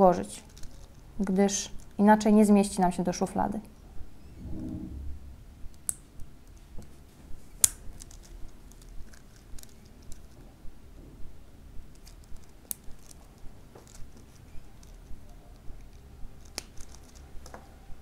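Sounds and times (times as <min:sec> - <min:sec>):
plastic toy parts clicking: 0:07.6 - 0:10.4, 0:11.9 - 0:15.1, 0:15.8 - 0:17.6
sharp plastic snaps: 0:07.6 - 0:10.4, 0:11.9 - 0:15.0, 0:15.7 - 0:17.7.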